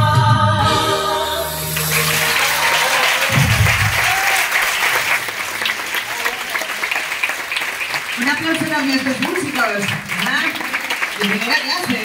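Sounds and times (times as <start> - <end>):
live band final chord: 0.0 - 4.4
audience applause: 1.6 - 12.0.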